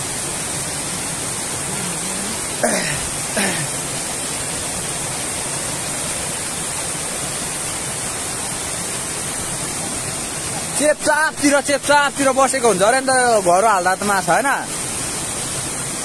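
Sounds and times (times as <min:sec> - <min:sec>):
waterfall rushing into pool: 0:00.0 - 0:16.0
short vocal sounds: 0:01.6 - 0:03.7.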